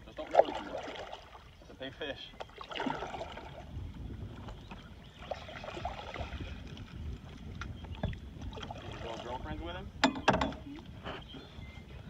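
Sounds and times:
water lapping on boat hull: 0:00.0 - 0:12.0
wind rumbling on microphone: 0:00.0 - 0:12.0
knocks against boat: 0:10.0 - 0:10.7.

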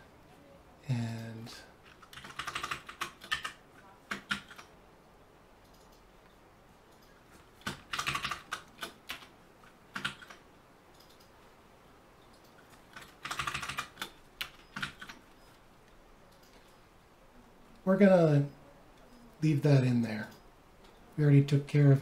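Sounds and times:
typing on keyboard: 0:01.9 - 0:04.7, 0:06.9 - 0:10.4, 0:12.4 - 0:15.2.

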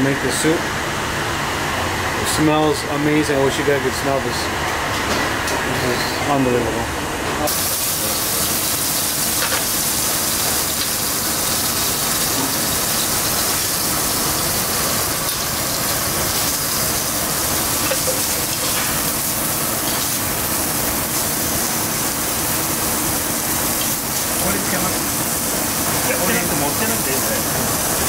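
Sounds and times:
steaks sizzling in oil: 0:07.5 - 0:28.0.

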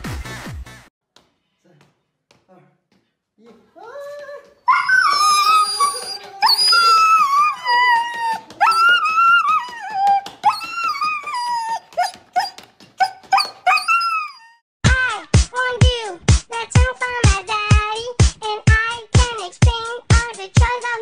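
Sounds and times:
husky whining and yipping: 0:04.6 - 0:14.6.

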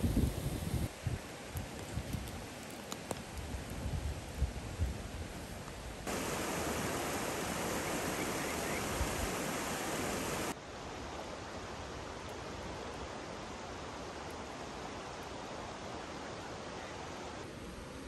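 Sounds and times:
mountain stream rushing: 0:06.1 - 0:18.0.

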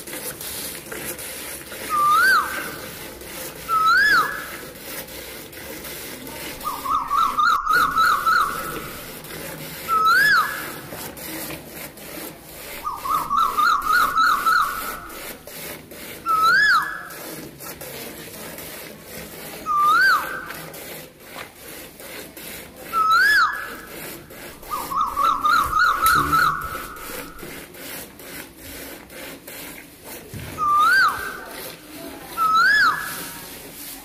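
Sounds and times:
milk squirting into a bucket: 0:00.0 - 0:02.0
bird calling: 0:01.9 - 0:02.8, 0:03.7 - 0:04.5, 0:06.6 - 0:09.1, 0:12.8 - 0:15.3, 0:16.3 - 0:17.0, 0:23.0 - 0:23.9, 0:24.6 - 0:27.5, 0:30.6 - 0:31.5, 0:32.4 - 0:33.2.

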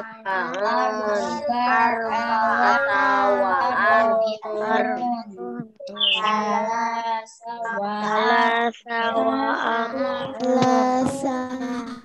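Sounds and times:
child chanting words: 0:00.0 - 0:12.0.

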